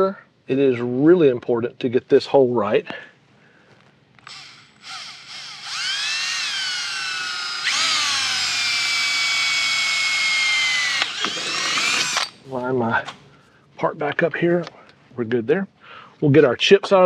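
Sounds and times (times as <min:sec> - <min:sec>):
cordless drill boring into metal: 0:04.2 - 0:12.4.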